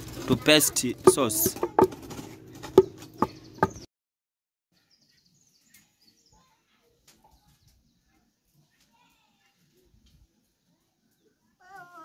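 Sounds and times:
pestle pounding in a mortar: 0:00.9 - 0:03.8.

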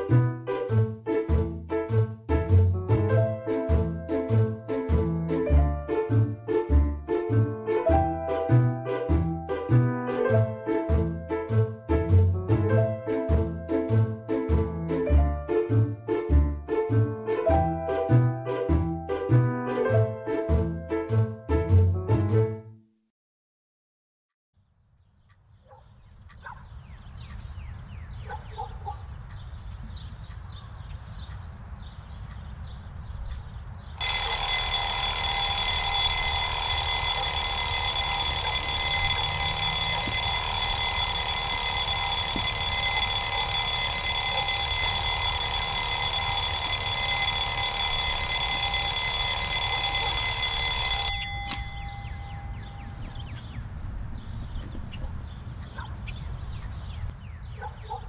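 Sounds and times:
alarm clock ringing: 0:34.0 - 0:53.3.

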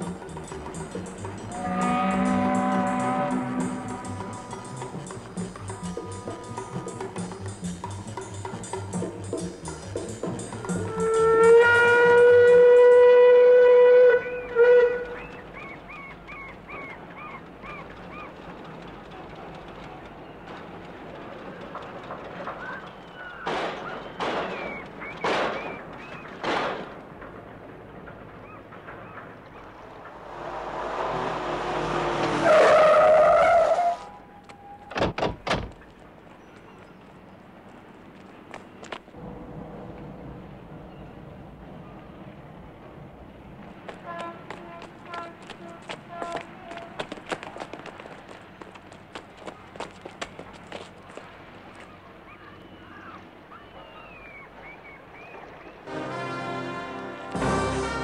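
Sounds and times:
tyres squealing: 0:28.5 - 0:35.0, 0:43.9 - 0:54.8
car approaching: 0:29.4 - 0:34.3.

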